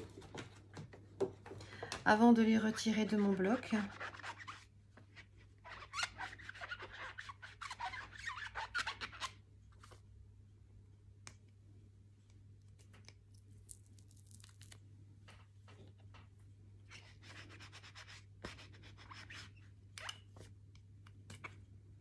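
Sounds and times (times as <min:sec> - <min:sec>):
scratchy scrubbing strokes: 0:03.0 - 0:04.7, 0:05.6 - 0:09.3.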